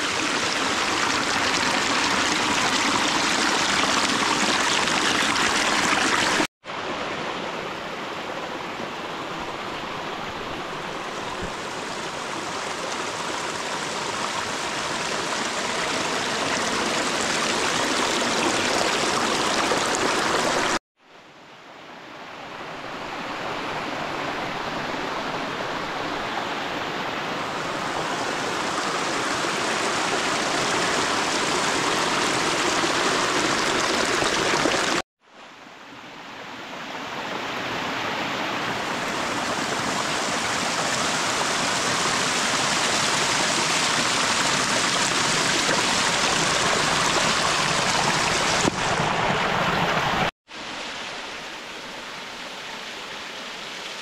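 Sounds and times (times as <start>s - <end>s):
stream splashing over rocks: 0.0s - 7.3s, 9.4s - 20.8s, 27.4s - 35.0s, 37.5s - 54.0s.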